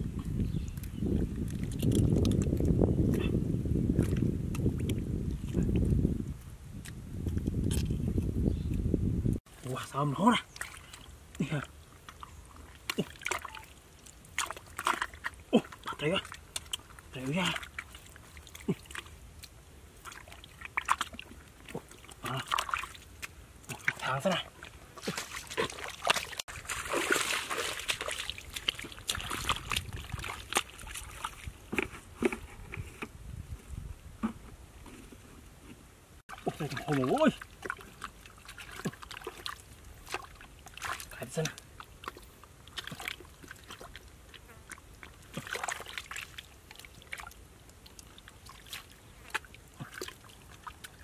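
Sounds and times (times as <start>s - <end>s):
wet squelches in mud: 0.0s - 8.9s, 9.6s - 32.4s, 36.3s - 51.0s
feet splashing through water: 10.3s - 31.6s, 36.3s - 51.0s.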